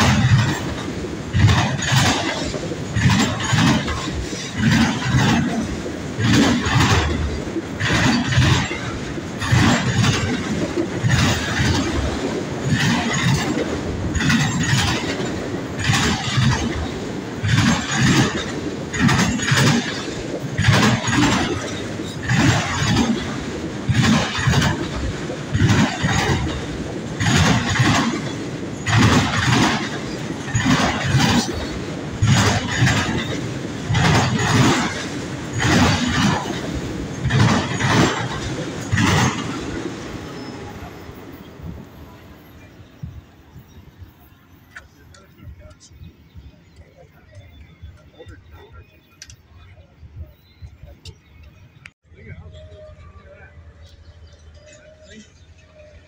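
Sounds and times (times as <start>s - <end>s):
train rumble: 0.0s - 56.0s
train wheels clacking over rail joints: 0.0s - 56.0s.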